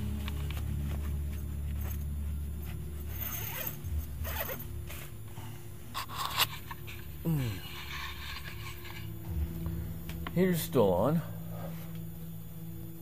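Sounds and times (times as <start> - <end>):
fabric rustling: 0.0 - 5.3
zipper pulled open: 0.4 - 5.2.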